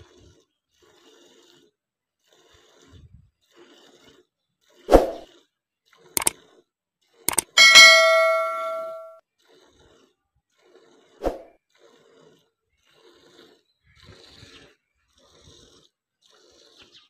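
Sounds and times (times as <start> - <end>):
bell chime notification: 7.5 - 9.2.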